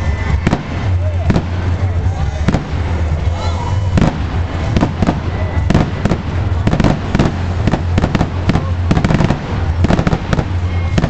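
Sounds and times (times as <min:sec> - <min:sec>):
fireworks bangs and cracks: 0:00.0 - 0:11.0
steady low rumble: 0:00.0 - 0:11.0.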